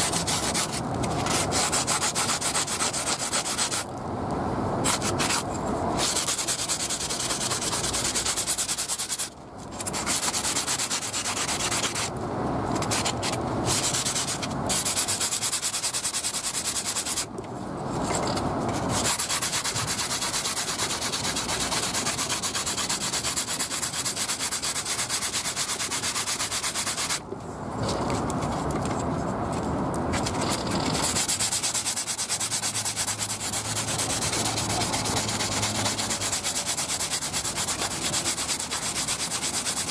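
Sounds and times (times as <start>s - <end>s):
sanding block scrubbing: 0.0s - 3.9s, 4.8s - 12.1s, 12.8s - 17.3s, 18.0s - 27.2s, 30.2s - 39.9s.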